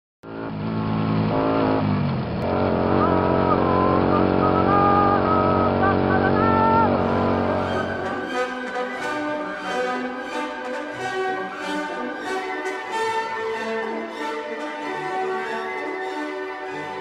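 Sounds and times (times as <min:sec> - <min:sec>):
motorcycle engine running: 0:00.2 - 0:08.2.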